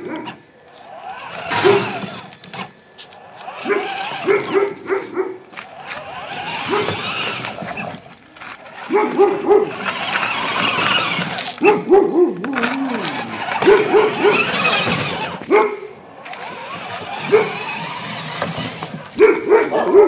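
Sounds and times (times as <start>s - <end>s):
dog barking: 3.6s - 5.4s, 6.7s - 7.0s, 8.8s - 9.9s, 11.6s - 12.4s, 13.6s - 14.7s, 15.4s - 15.9s, 17.2s - 17.6s, 19.1s - 20.0s.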